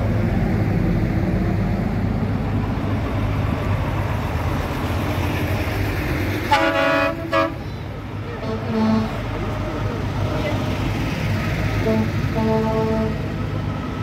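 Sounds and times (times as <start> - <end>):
diesel trucks rumbling past: 0.0 - 14.0
truck horn: 6.4 - 7.8, 8.4 - 9.4, 11.8 - 13.4.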